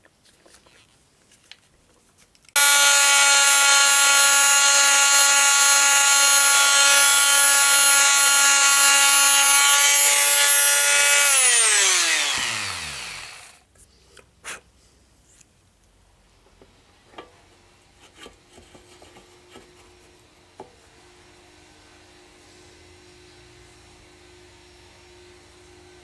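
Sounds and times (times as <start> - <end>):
electric sander whine: 2.6 - 13.6.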